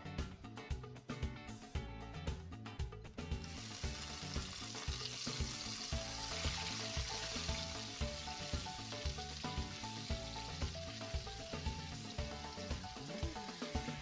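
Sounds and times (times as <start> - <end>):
background music with steady beat: 0.0 - 14.0
chicken sizzling in oil: 3.3 - 14.0.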